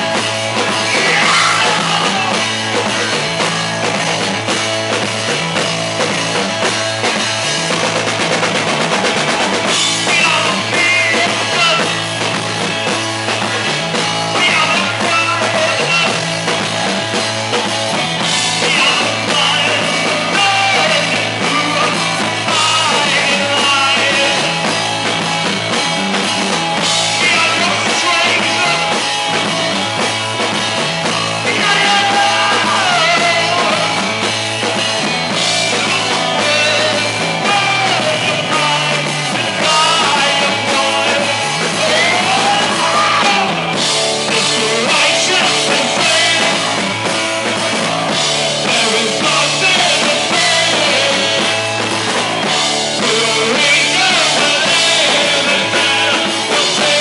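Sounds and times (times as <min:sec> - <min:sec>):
punk rock band playing live: 0:00.0 - 0:57.0
person singing: 0:00.6 - 0:03.5, 0:09.7 - 0:12.2, 0:14.2 - 0:16.3, 0:18.5 - 0:24.8, 0:27.0 - 0:29.5, 0:31.3 - 0:34.2, 0:35.4 - 0:51.8, 0:52.4 - 0:57.0.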